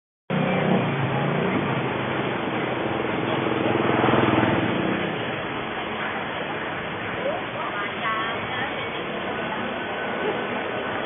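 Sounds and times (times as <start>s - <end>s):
vehicle engine running: 0.3s - 7.2s
road and traffic noise: 0.3s - 11.0s.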